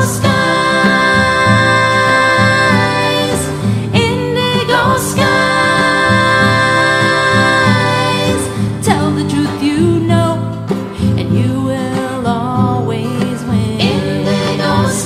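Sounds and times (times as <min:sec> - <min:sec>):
strummed guitar: 0:00.0 - 0:15.0
woman singing: 0:00.0 - 0:15.0.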